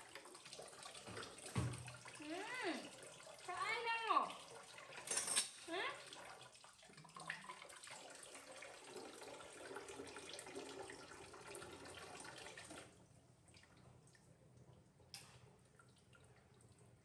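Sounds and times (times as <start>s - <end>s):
tap water running into sink: 0.0s - 13.0s.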